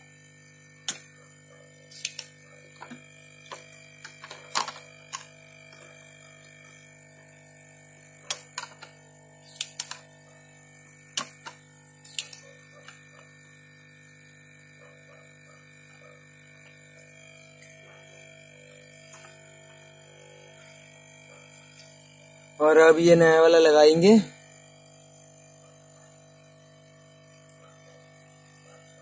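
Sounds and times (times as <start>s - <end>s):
steady electrical hum: 0.0s - 29.0s
small tools clicking and tapping: 0.8s - 1.1s, 1.9s - 6.0s, 8.2s - 10.1s, 11.2s - 13.3s.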